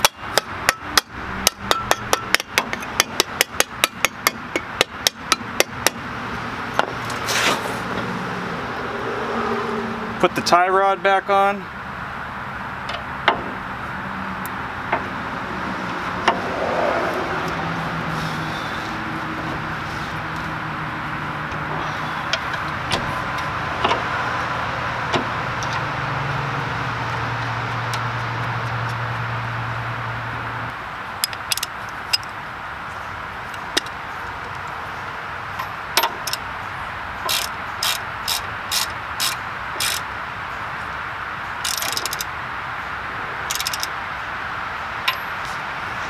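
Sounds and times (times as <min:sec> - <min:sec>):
ratchet wrench clicking: 0:31.2 - 0:32.3, 0:37.2 - 0:40.1, 0:41.6 - 0:42.3, 0:43.5 - 0:43.9.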